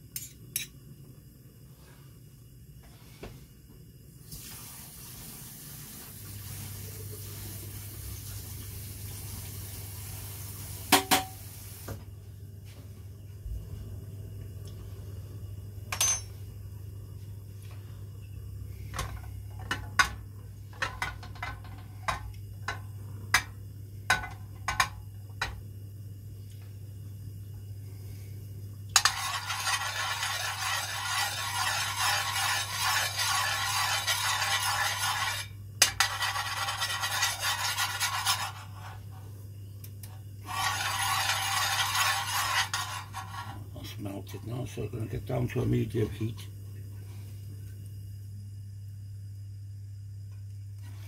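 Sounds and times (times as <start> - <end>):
constant low hum: 10.8 - 51.0
spoon scraping pan: 29.0 - 39.2, 40.4 - 43.7.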